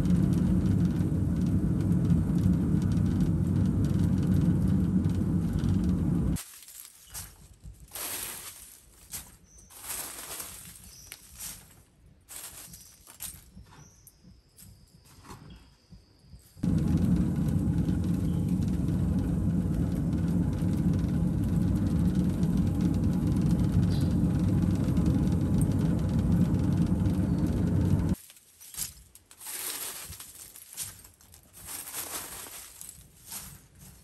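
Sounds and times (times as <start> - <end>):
low roar of furnace blast: 0.0 - 6.4, 16.6 - 28.2.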